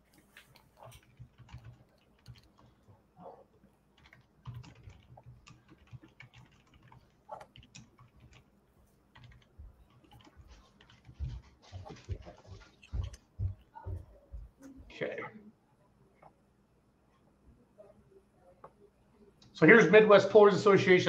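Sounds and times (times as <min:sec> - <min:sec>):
keyboard typing and clicking: 0:00.0 - 0:14.6.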